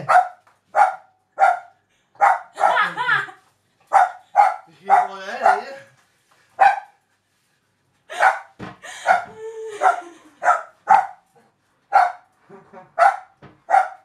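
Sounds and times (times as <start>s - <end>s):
dog barking: 0.0s - 2.9s, 3.9s - 5.8s, 6.6s - 7.0s, 8.1s - 11.2s, 11.9s - 12.2s, 13.0s - 14.0s.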